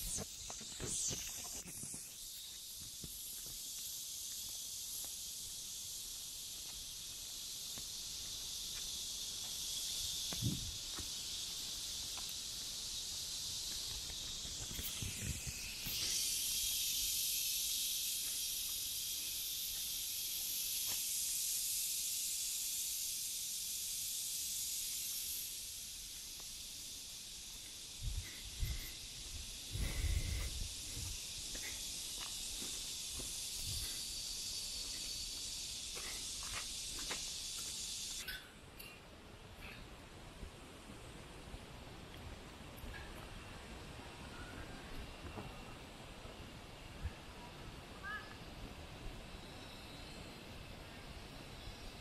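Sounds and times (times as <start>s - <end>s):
insect chorus hissing: 0.0s - 52.0s.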